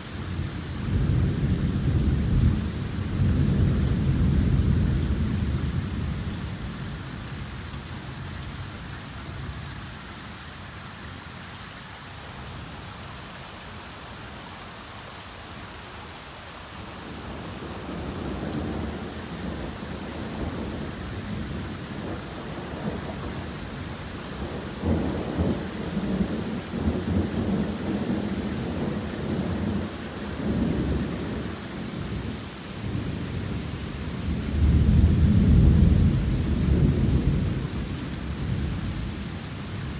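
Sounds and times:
heavy rain pouring: 0.0s - 39.9s
rolling thunder: 17.4s - 31.5s, 32.1s - 39.1s.

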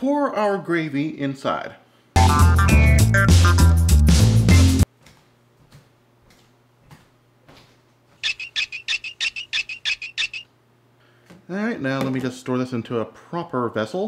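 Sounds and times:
background music: 2.2s - 4.8s
high-pitched bird-like chirps: 8.2s - 10.5s.

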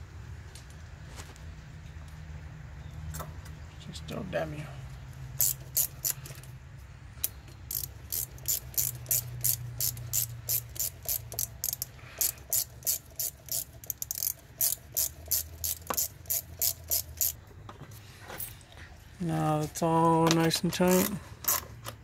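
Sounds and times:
hand ratchet clicking: 5.4s - 6.5s, 7.2s - 17.4s, 20.7s - 22.0s.

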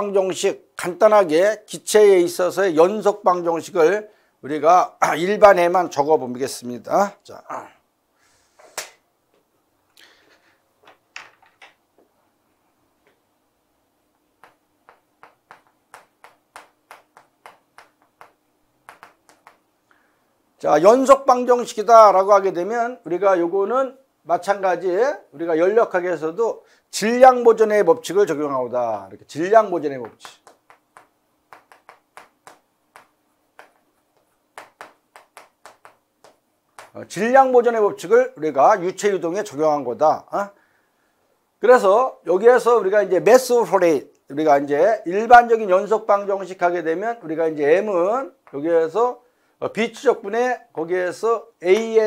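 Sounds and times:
chalk tapping on chalkboard: 14.4s - 19.6s, 30.0s - 37.0s.

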